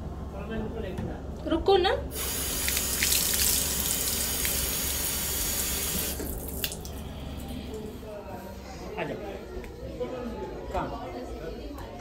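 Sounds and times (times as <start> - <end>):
tap water splashing on tiles: 2.2 - 7.0.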